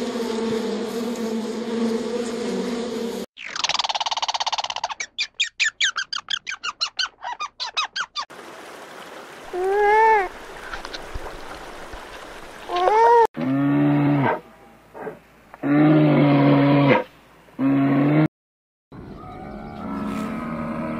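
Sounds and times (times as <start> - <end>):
squirrel chattering chirps: 3.4 - 8.2
nutria call rising and falling: 3.4 - 8.3.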